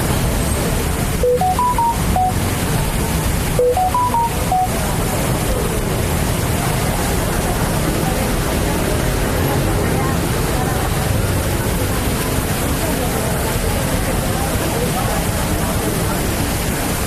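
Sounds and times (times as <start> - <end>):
street traffic rumble: 0.0 - 17.0
electronic notification chime: 1.2 - 2.5, 3.6 - 4.8.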